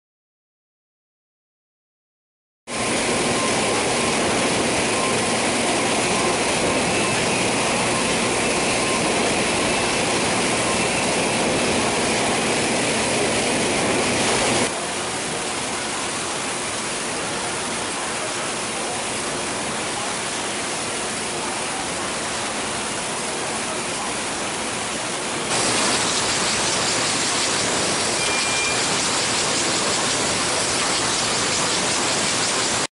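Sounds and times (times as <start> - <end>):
machinery noise: 2.7 - 24.6, 25.3 - 32.9
faint high whine: 3.1 - 14.7, 25.5 - 32.9.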